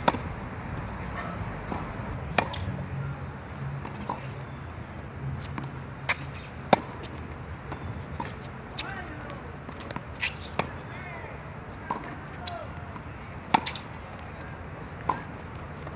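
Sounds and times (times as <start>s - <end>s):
tennis ball bouncing on court: 0.0s - 2.7s, 3.8s - 4.6s, 5.4s - 11.2s, 11.8s - 15.9s
tennis ball struck by rackets: 0.0s - 2.7s, 5.4s - 10.9s, 11.8s - 15.9s.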